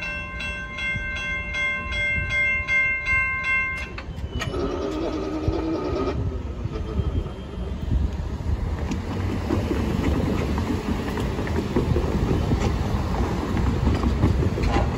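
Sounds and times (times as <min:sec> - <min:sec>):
rumble of car engines and tyres: 0:04.0 - 0:14.9.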